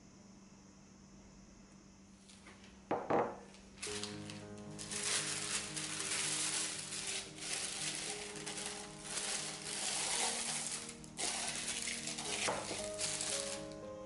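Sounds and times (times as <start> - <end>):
plastic bag crinkling: 3.7 - 13.8.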